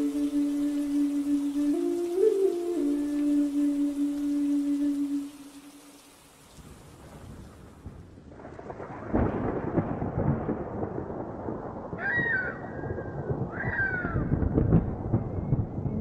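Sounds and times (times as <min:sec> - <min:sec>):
hot oil sizzling and spluttering: 0:03.2 - 0:07.9.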